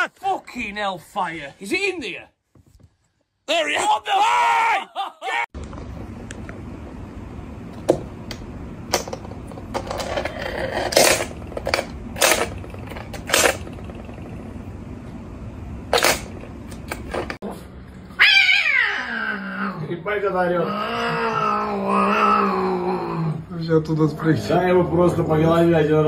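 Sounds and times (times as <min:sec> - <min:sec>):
low room hum: 0:00.0 - 0:26.0
cat yowling: 0:18.1 - 0:19.8.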